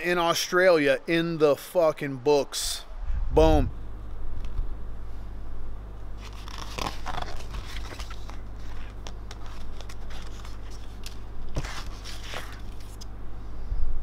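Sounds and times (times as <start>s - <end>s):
low hum: 0.0s - 14.0s
paper brochure rustling: 6.2s - 13.1s.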